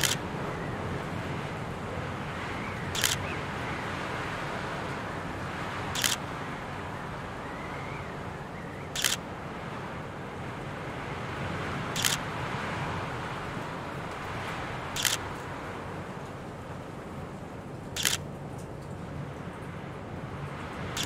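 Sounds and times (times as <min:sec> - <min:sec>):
camera shutter clicking: 0:00.0 - 0:00.2, 0:03.0 - 0:03.2, 0:06.0 - 0:06.2, 0:09.0 - 0:09.2, 0:12.0 - 0:12.2, 0:15.0 - 0:15.2, 0:18.0 - 0:18.2.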